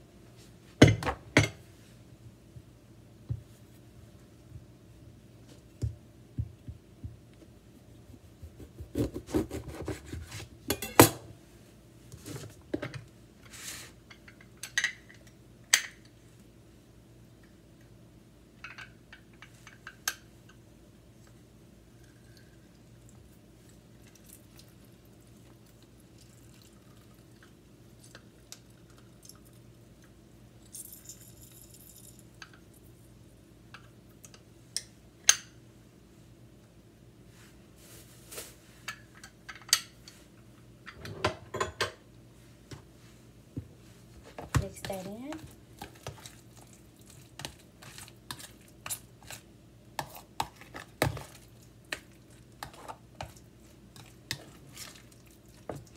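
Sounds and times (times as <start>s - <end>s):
faint steady hum: 0.0s - 55.9s
knife cutting on cutting board: 8.6s - 10.4s.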